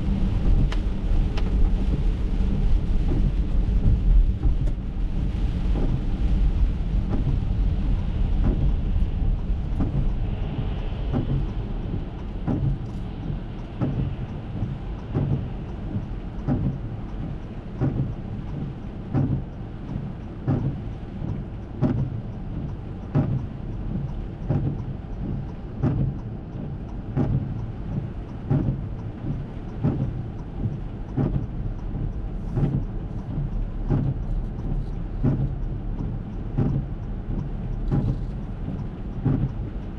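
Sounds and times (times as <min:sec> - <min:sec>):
low engine rumble: 0:00.0 - 0:39.9
tyre noise on wet road: 0:00.0 - 0:39.9
soft regular knock: 0:12.4 - 0:12.9, 0:37.9 - 0:39.5.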